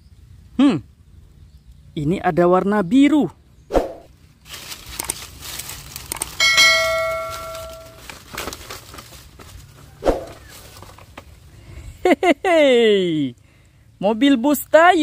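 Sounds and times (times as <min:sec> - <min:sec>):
dry leaves and sticks rustling: 0:04.1 - 0:11.6
bright bell-like ding: 0:06.4 - 0:08.0.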